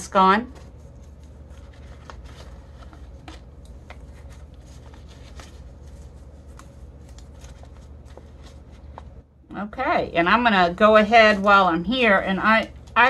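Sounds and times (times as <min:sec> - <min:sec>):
steady low hum: 0:00.0 - 0:13.0
face mask rustling and clicking: 0:00.7 - 0:09.2.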